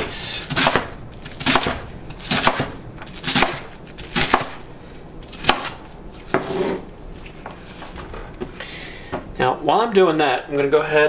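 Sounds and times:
knife chopping cabbage on board: 0.5 - 4.6, 5.3 - 6.5.

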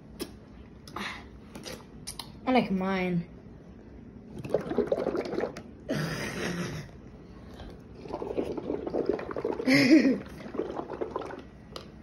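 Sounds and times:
bubbling through a straw: 4.3 - 5.9, 7.5 - 12.0.

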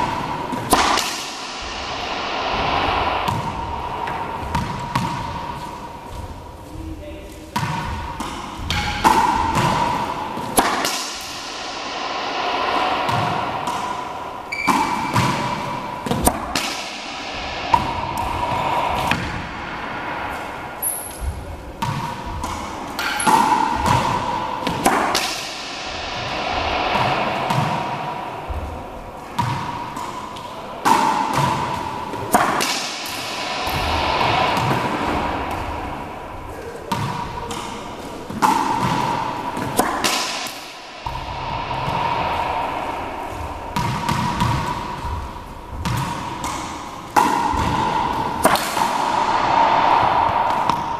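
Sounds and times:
racquet striking ball: 0.0 - 6.2, 7.6 - 50.9
ball hitting wall: 2.7 - 5.8, 7.6 - 11.6, 26.8 - 30.2, 30.8 - 36.0, 36.9 - 37.7, 38.3 - 41.3, 43.3 - 50.9
ball bouncing on hardwood floor: 45.8 - 46.6.

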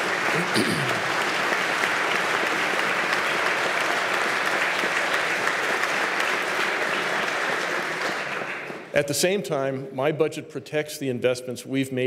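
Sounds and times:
crowd applauding: 0.0 - 9.0.

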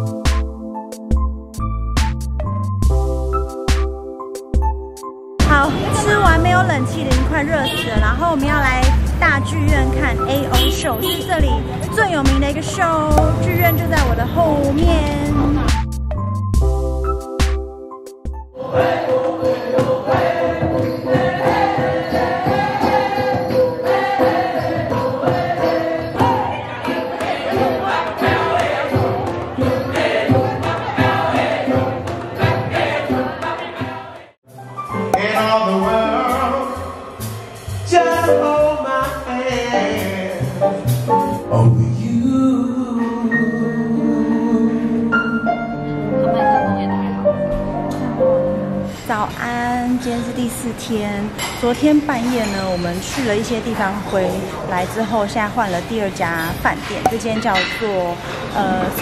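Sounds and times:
piano and band accompaniment: 0.0 - 33.2, 34.5 - 49.0
group of voices singing: 18.6 - 34.4.

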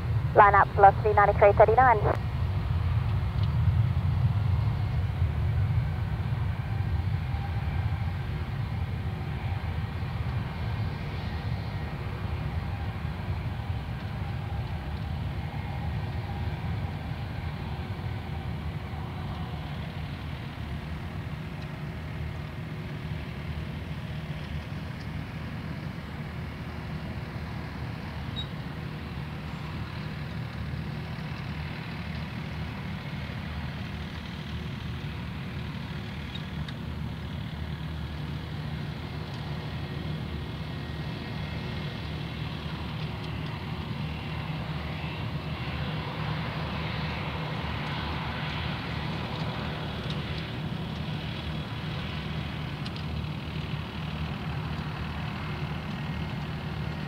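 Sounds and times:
jet engines idling rumble and whine: 0.0 - 57.0.

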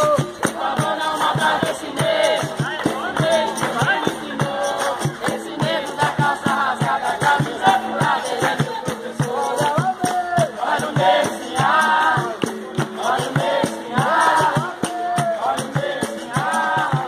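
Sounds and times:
hand clapping: 0.0 - 6.6, 7.2 - 10.5
group of voices singing: 0.0 - 17.0
steady percussion beat: 0.0 - 17.0.

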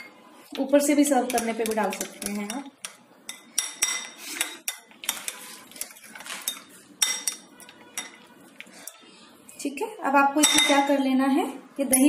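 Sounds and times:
spoon clinking glass bowl: 1.3 - 9.0, 10.4 - 10.9.

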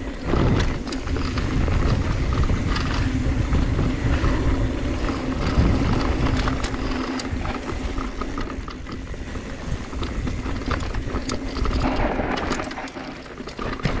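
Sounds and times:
low rumble: 0.0 - 8.2
bike rattling clicks: 0.0 - 14.0
bike tyres crunching over dirt: 0.0 - 14.0.

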